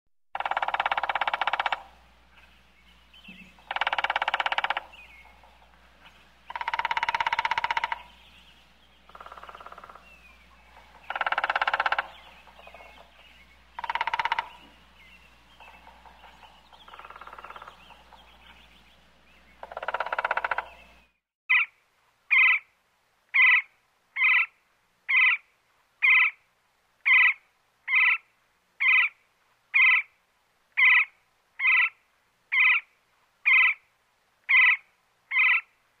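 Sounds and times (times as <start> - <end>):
woodpecker knocking on wood: 0.4 - 2.0, 3.3 - 8.2, 10.7 - 13.2, 13.8 - 14.8, 15.6 - 18.6, 19.6 - 20.8
woodpecker chirping calls: 0.4 - 22.7, 23.3 - 25.4, 26.0 - 26.4, 27.0 - 30.1, 30.8 - 33.8, 34.5 - 35.7.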